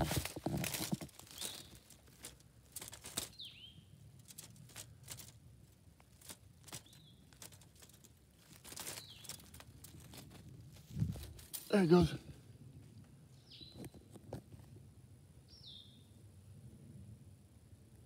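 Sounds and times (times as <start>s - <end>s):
wire-mesh trap rattling: 0.0s - 3.5s, 4.2s - 5.4s, 6.1s - 10.4s.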